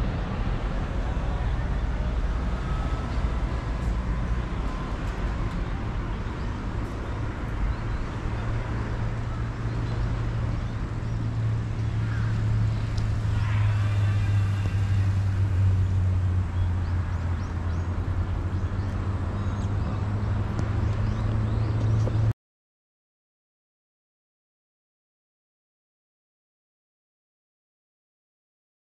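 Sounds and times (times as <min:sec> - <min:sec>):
road traffic engine hum: 0:00.0 - 0:22.4.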